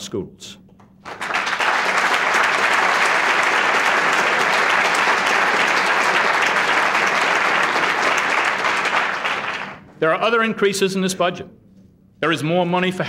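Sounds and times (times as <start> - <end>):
audience applauding: 1.0 - 9.9.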